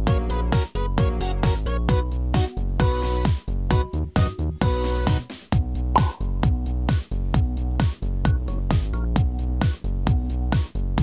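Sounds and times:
upbeat electronic music: 0:04.7 - 0:07.1
short bright blip: 0:06.0 - 0:06.4.

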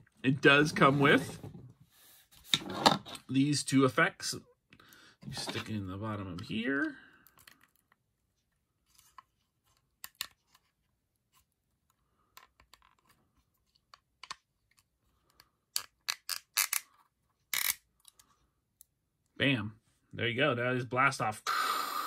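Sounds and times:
plastic pieces clicking into place: 0:10.0 - 0:10.6, 0:13.7 - 0:18.3
small plastic clicks and scrapes: 0:12.2 - 0:18.9.

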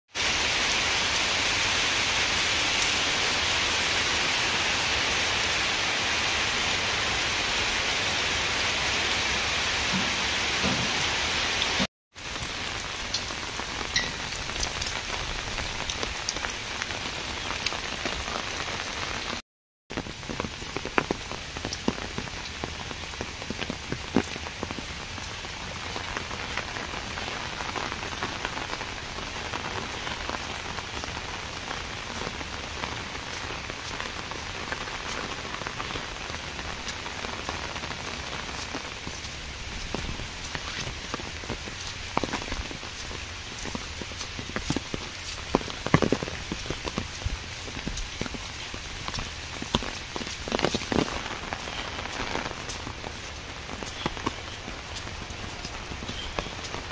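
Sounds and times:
rain falling on wet ground: 0:00.1 - 0:56.9.

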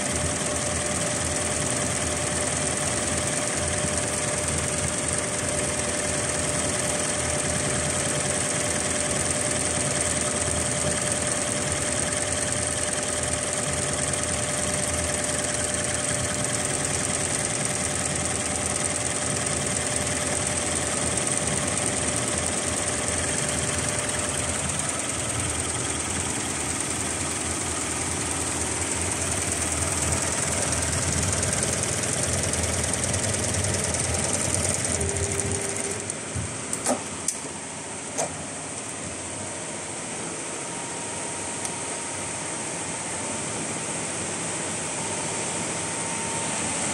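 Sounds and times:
embroidery machine stitching: 0:00.0 - 0:37.0.

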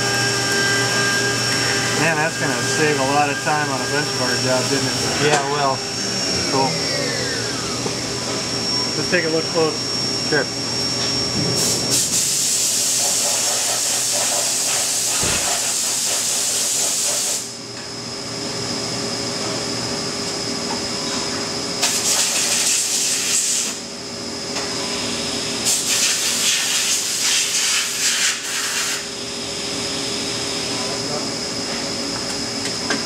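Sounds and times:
steady machine hum: 0:00.0 - 0:16.1, 0:23.8 - 0:25.7, 0:28.4 - 0:33.0.

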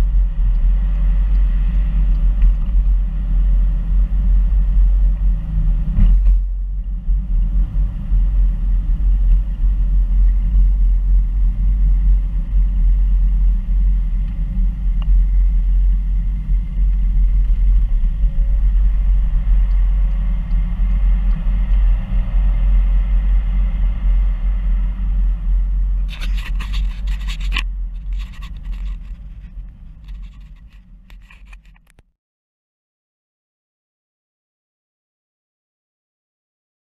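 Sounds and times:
car cabin engine and tyre rumble: 0:00.0 - 0:32.0
knocks and rattles: 0:26.1 - 0:32.0.

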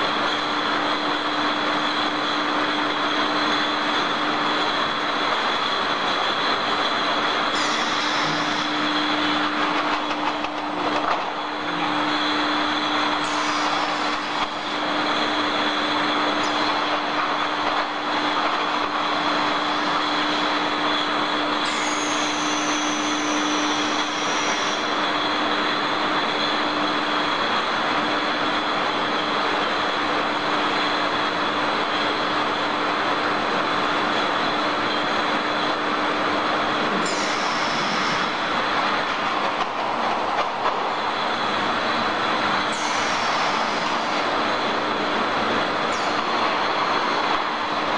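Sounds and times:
conveyor machine hum and whine: 0:00.0 - 0:47.9
high machine squeal: 0:06.4 - 0:09.6, 0:12.1 - 0:16.8, 0:19.2 - 0:25.1, 0:37.0 - 0:38.7.

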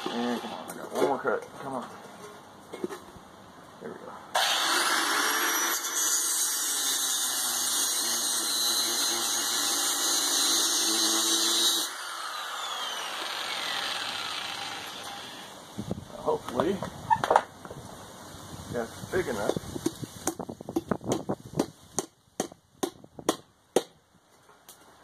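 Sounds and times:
angle grinder cutting steel: 0:00.0 - 0:00.8, 0:04.4 - 0:15.6.

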